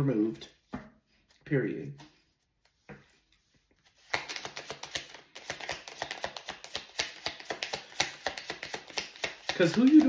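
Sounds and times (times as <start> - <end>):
cards being shuffled: 2.0 - 10.0.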